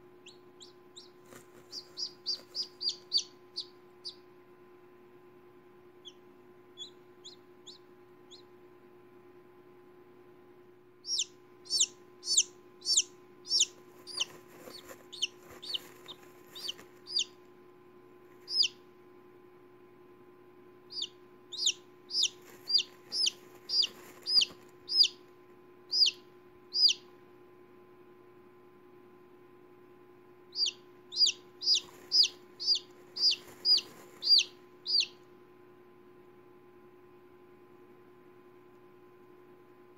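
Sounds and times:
chick peeping: 0.2s - 4.3s, 6.0s - 8.6s, 11.0s - 17.5s, 18.4s - 18.9s, 20.8s - 25.3s, 25.9s - 27.1s, 30.5s - 35.3s.

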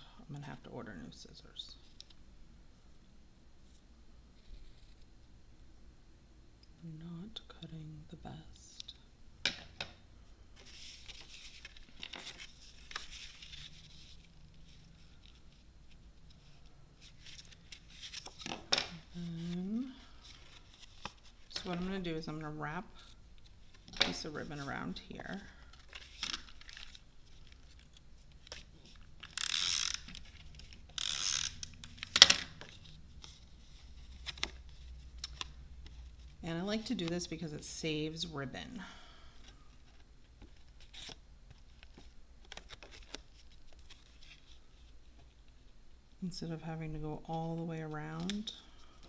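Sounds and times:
paper sliding and rustling: 10.6s - 15.7s.

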